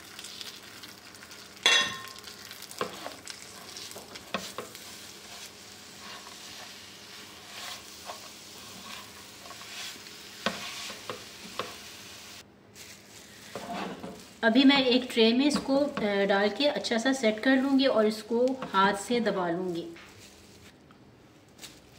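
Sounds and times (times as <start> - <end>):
light sizzle: 0.0 - 21.9
spatula scraping frying pan: 2.4 - 12.0, 13.3 - 14.4.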